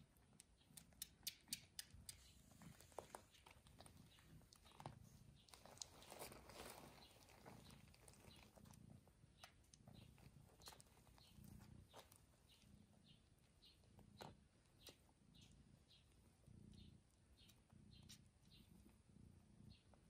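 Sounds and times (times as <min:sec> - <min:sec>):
small wet ticks: 0:00.2 - 0:06.4
rustle of fur and bedding: 0:02.4 - 0:09.2.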